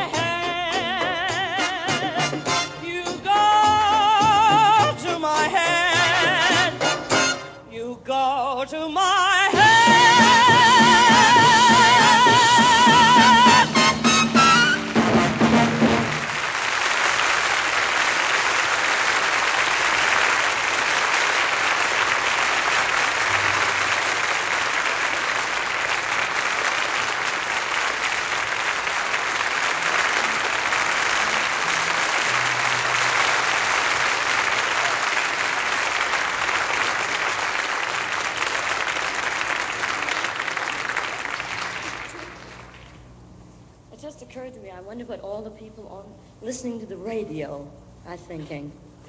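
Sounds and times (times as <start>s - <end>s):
audience applauding: 10.4s - 43.1s.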